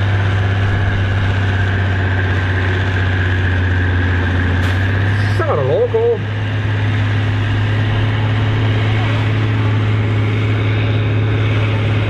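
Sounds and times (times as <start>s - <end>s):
tractor diesel engine droning: 0.0s - 12.0s.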